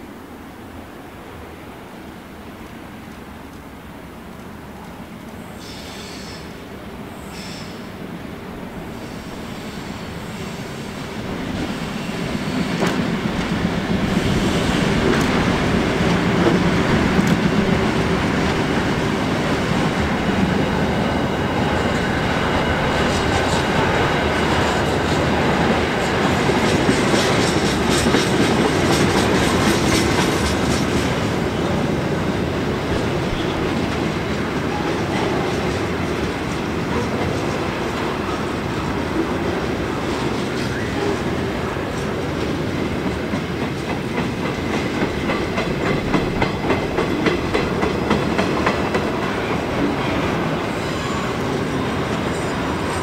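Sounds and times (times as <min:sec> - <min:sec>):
train wheels rumbling: 0:05.6 - 0:53.0
clickety-clack over rail joints: 0:11.4 - 0:20.6, 0:21.8 - 0:53.0.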